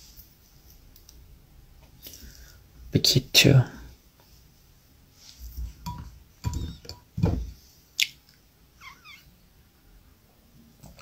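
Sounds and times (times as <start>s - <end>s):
glass bumps and rustles: 5.6s - 7.6s
glass clink: 5.9s - 7.4s.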